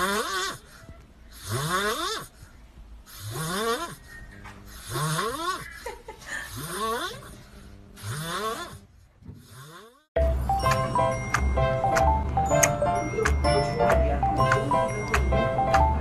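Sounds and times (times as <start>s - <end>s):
music with a beat: 10.2s - 16.0s.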